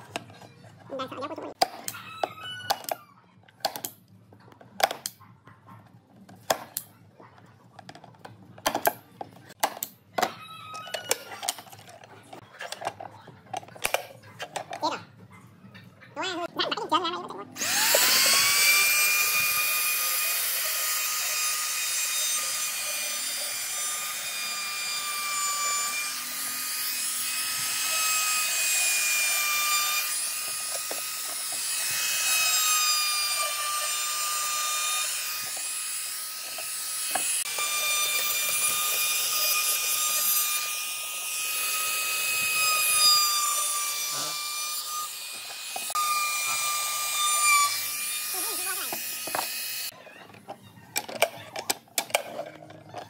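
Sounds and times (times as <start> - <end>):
trim router whining: 17.6 - 50.0.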